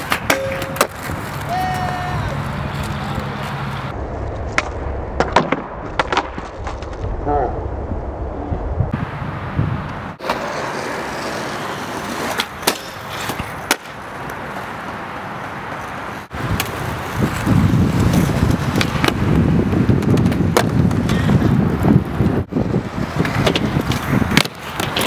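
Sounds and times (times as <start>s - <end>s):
skateboard clacks: 0.0s - 3.8s, 10.2s - 21.9s, 23.0s - 25.0s
skateboard wheels rolling on asphalt: 0.0s - 25.0s.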